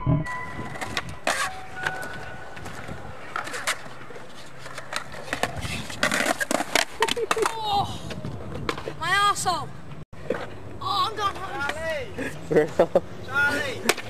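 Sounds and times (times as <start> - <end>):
skateboard wheels rolling: 0.4 - 12.2
skateboard tail clacks: 4.6 - 9.0.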